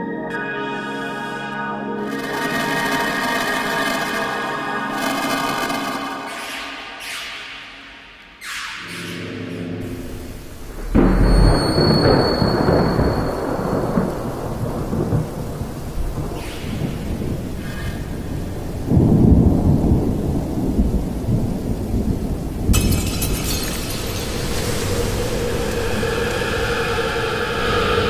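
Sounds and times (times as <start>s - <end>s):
bright hiss: 9.8s - 20.8s, 21.6s - 28.0s
deep rumbling electronic noise: 23.9s - 28.0s.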